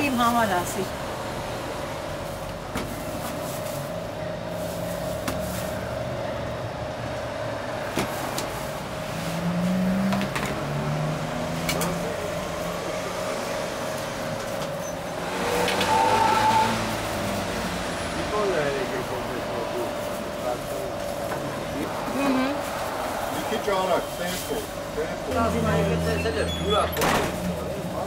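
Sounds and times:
street traffic rumble: 0.0s - 28.0s.

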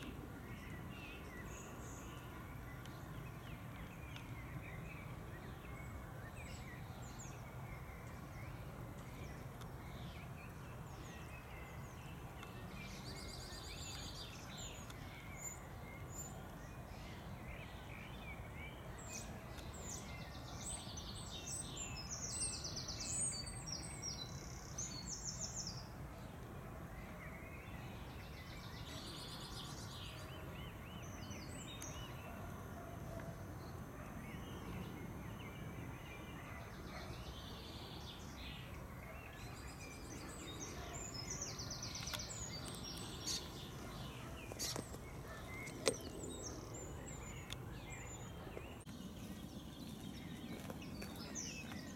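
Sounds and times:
starlings calling: 39.0s - 51.9s.

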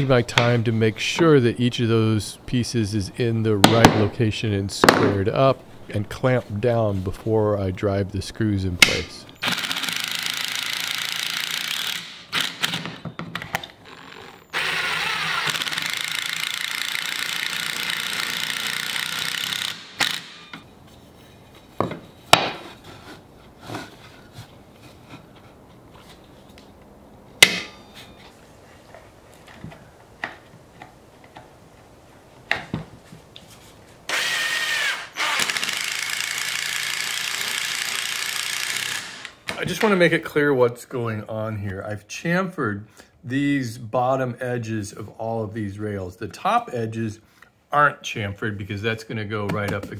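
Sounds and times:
electric drill driving screws: 9.4s - 13.0s, 13.8s - 20.6s, 34.1s - 39.4s.

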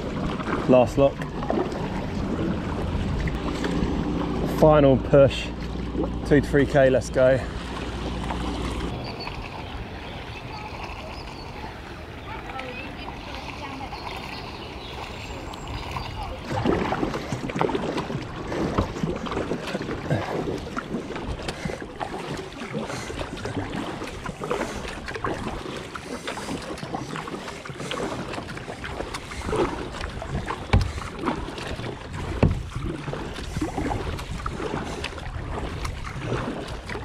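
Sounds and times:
wind buffeting microphone: 0.0s - 20.2s
kayak paddle strokes in water: 0.0s - 37.0s.

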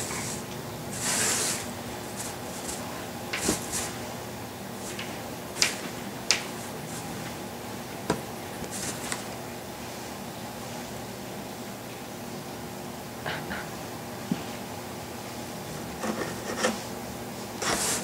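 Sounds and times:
cardboard box rustling and scraping: 17.6s - 18.0s.

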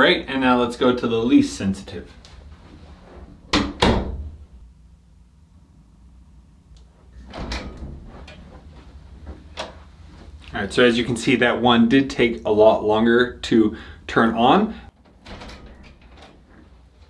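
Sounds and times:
door closing with latch knocks: 3.5s - 4.4s, 7.2s - 8.5s, 15.1s - 16.4s
door handle and latch clattering: 15.1s - 16.4s.

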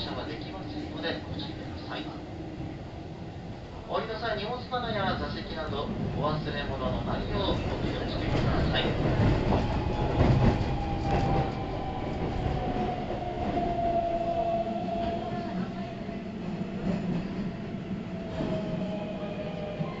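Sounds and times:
wheels rumbling on rail: 5.4s - 17.6s.

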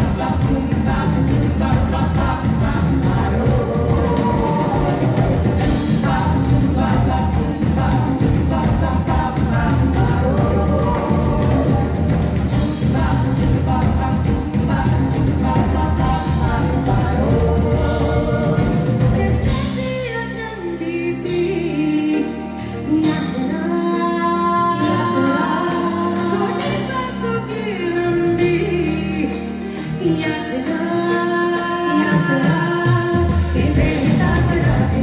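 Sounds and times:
heavy bass and drums: 0.0s - 20.0s, 32.9s - 35.0s
live band: 0.0s - 35.0s
singers holding long lines: 0.0s - 35.0s.

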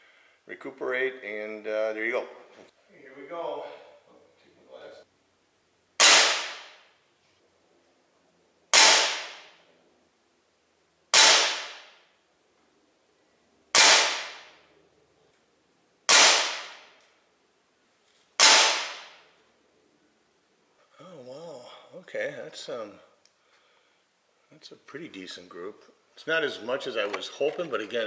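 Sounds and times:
pellet revolver shots: 6.0s - 6.8s, 8.7s - 9.6s, 11.1s - 12.0s, 13.7s - 14.6s, 16.1s - 17.0s, 18.4s - 19.2s.

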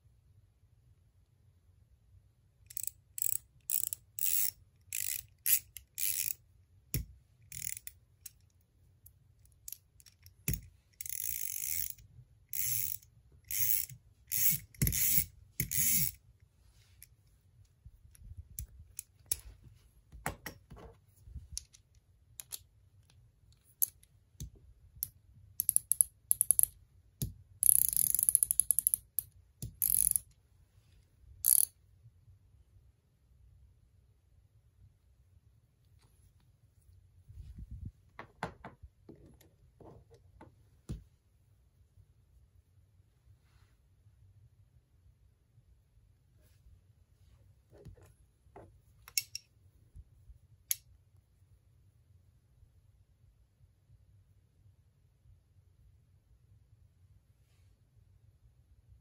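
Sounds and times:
ratchet pawl clicking: 2.7s - 6.4s, 7.5s - 7.9s, 10.5s - 16.2s, 27.6s - 29.0s, 29.8s - 30.2s, 31.4s - 31.7s
tool handling knocks: 38.2s - 40.1s.

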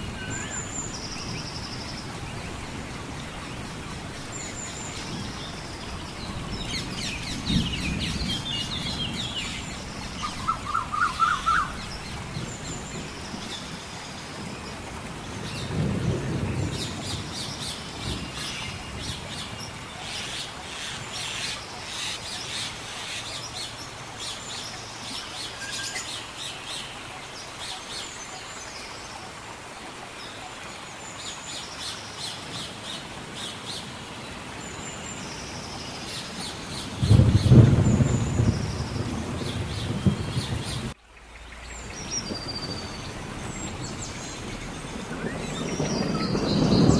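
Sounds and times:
birds chirping and calling: 4.0s - 13.7s, 34.8s - 46.9s.

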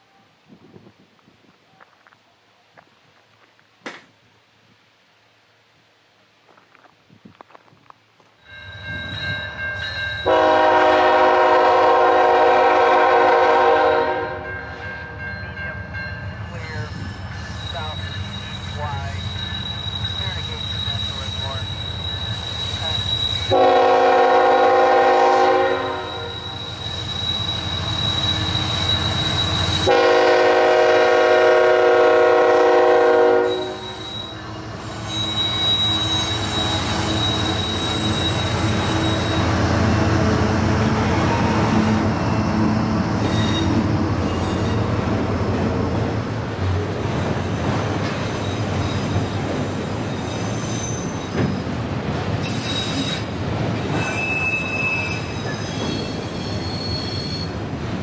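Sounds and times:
train cars rumbling by: 8.4s - 58.0s
locomotive horn blast: 10.3s - 14.5s, 23.4s - 26.5s, 29.7s - 34.6s
wheels squealing on curve: 16.5s - 23.6s, 25.9s - 29.9s, 33.4s - 39.8s, 41.1s - 46.2s, 50.0s - 51.7s, 52.4s - 57.7s.

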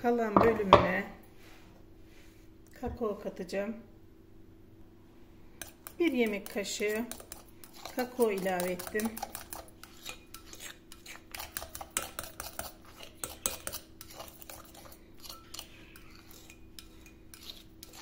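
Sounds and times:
spoon stirring batter in glass bowl: 5.6s - 18.0s.

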